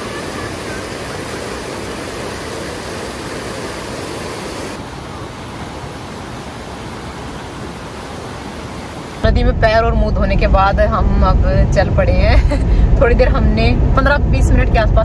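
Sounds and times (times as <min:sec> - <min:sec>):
river rushing: 0:00.0 - 0:09.6.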